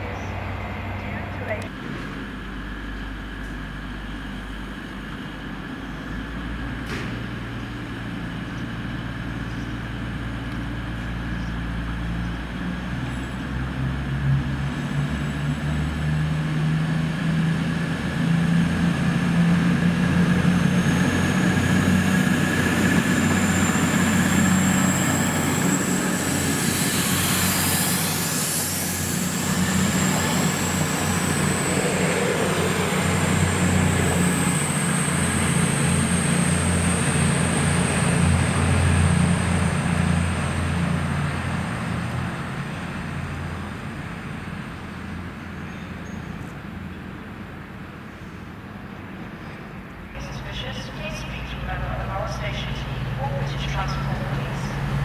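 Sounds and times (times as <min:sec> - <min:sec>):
diesel train engine hum: 0:00.0 - 0:55.0
high steady whine: 0:50.2 - 0:55.0.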